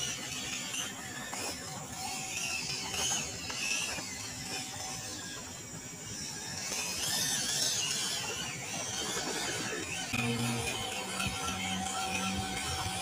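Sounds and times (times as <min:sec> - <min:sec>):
electric motor and gearbox whining: 0:00.0 - 0:13.0.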